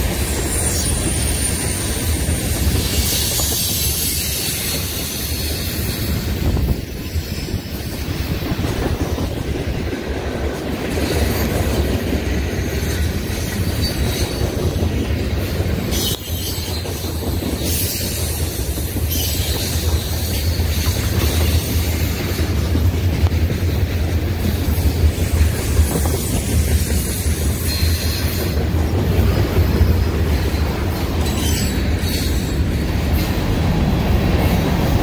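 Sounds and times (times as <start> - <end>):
train wheels rumbling on rails: 0.0 - 35.0
high-pitched wheel squeal: 0.2 - 8.4, 15.8 - 22.4, 29.2 - 32.6.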